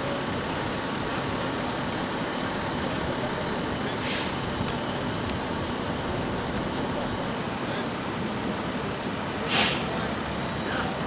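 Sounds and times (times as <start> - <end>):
rumble of running vehicles: 0.0 - 11.0
short hiss: 4.0 - 4.4, 9.5 - 10.0.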